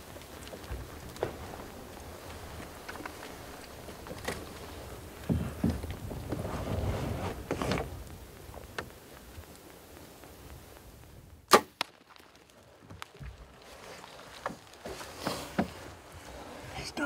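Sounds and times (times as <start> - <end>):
low rustling: 0.0 - 17.0
bow string release crack: 11.5 - 12.4.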